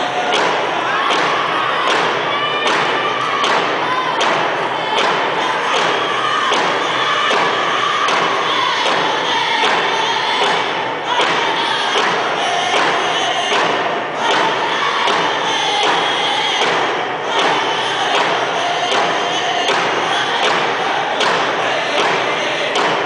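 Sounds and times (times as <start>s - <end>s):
men singing in high voices: 5.4s - 23.0s.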